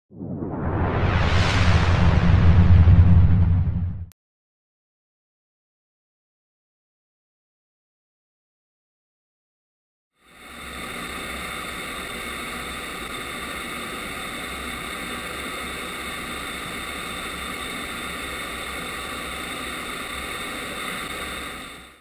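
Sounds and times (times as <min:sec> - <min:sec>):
faint steady tones: 0:10.2 - 0:22.0
rushing air in cockpit: 0:10.2 - 0:22.0.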